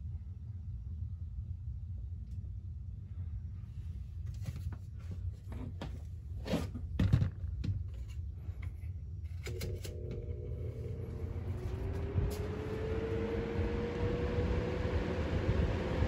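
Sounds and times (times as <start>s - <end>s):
fan motor humming: 9.3s - 16.0s.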